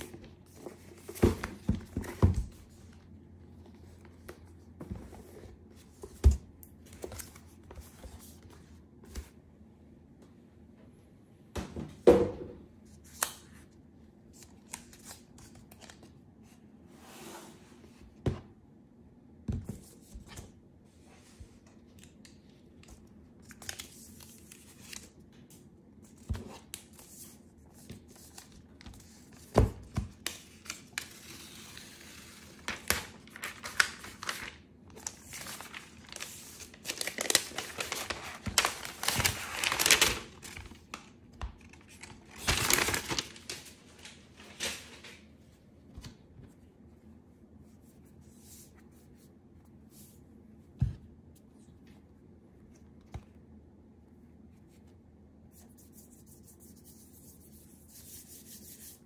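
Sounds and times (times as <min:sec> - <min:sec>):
paper rustling and tearing: 0:30.6 - 0:40.9, 0:41.6 - 0:45.2.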